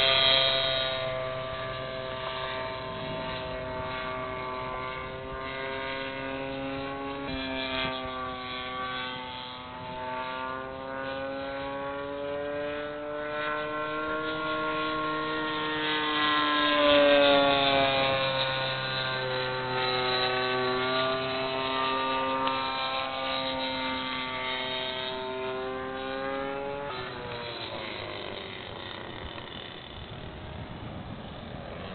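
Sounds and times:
model plane engine in flight: 0.0 - 31.9.

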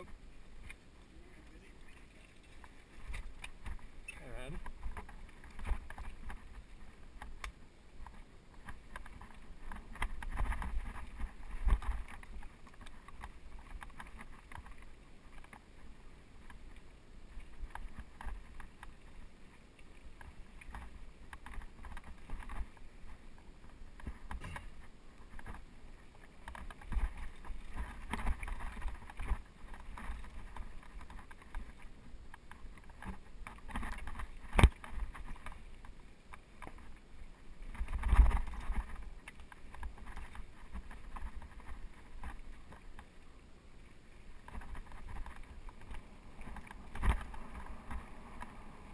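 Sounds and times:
bike tyres rolling over stones: 0.0 - 48.9
bike rattling and clunking: 24.0 - 35.9.

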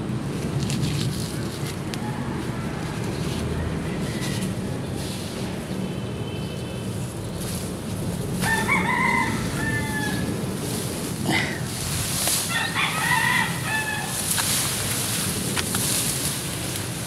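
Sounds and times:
rooster crowing: 2.0 - 4.8, 8.4 - 10.4, 12.4 - 14.3.

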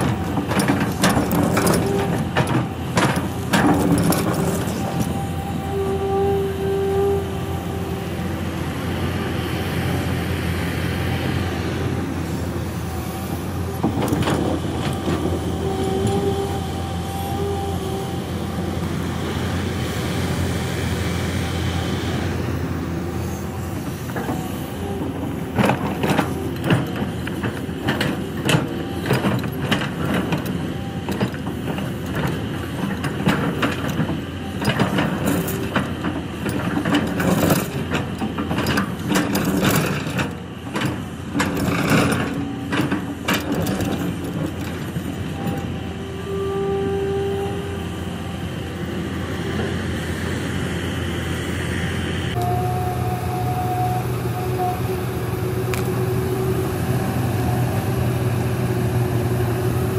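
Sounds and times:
excavator diesel engine drone: 0.0 - 59.9.

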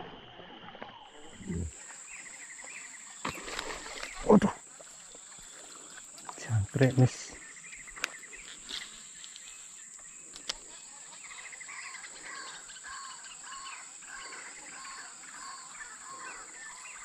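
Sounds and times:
insects droning: 0.0 - 17.0
birds calling: 1.1 - 17.0.

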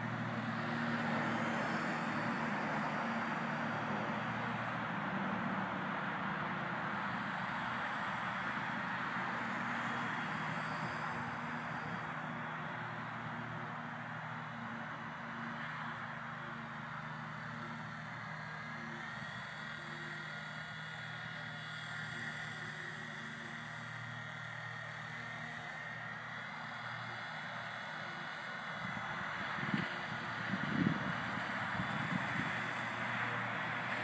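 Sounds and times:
toy helicopter whirring: 0.0 - 6.1, 6.9 - 16.2, 16.8 - 34.0
wind hiss on microphone: 28.8 - 33.3.

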